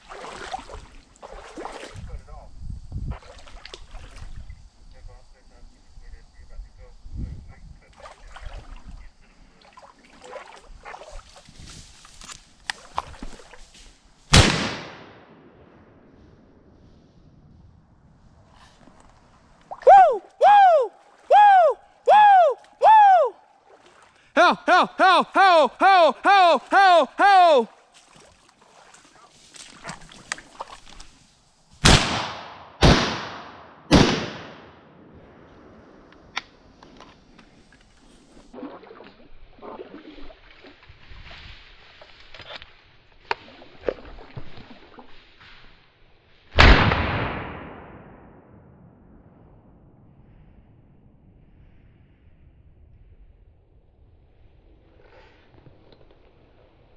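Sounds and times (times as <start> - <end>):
splashing through shallow water: 0.0 - 2.3, 3.1 - 4.6, 7.7 - 13.7, 18.8 - 31.4, 36.8 - 45.4
shotgun blast: 14.3 - 15.5, 31.8 - 34.8, 46.6 - 48.4.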